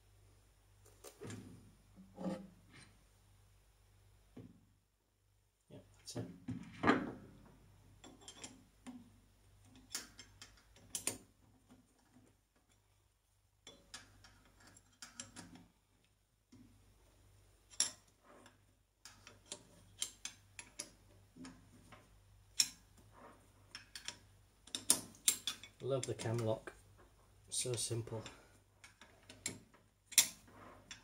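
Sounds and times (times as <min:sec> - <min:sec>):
sharp metallic clicks and knocks: 0:23.7 - 0:26.5.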